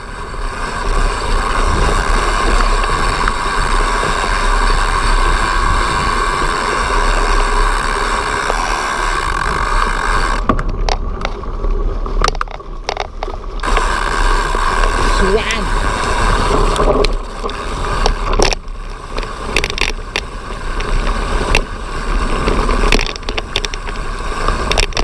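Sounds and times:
wind and tyre noise: 0:00.0 - 0:25.0.

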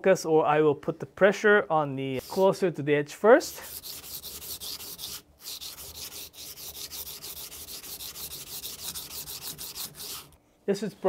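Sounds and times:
knife scraping on whetstone: 0:03.5 - 0:10.4.

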